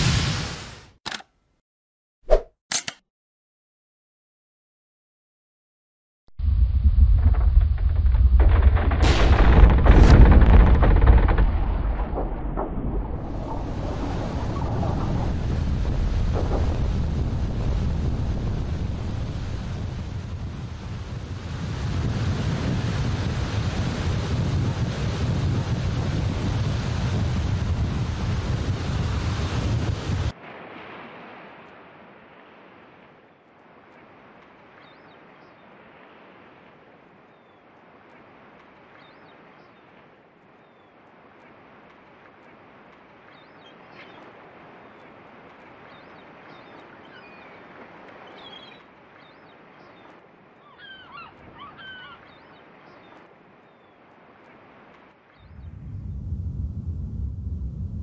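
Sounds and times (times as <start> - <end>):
wind: 6.4 - 58.0
ocean waves rushing: 9.0 - 37.2.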